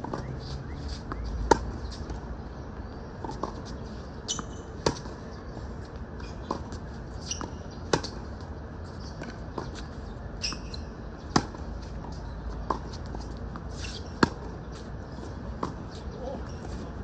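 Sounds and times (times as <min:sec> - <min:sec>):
shoes squeaking on court: 0:00.0 - 0:17.0
racket hitting tennis ball: 0:10.5 - 0:11.7, 0:12.6 - 0:14.6.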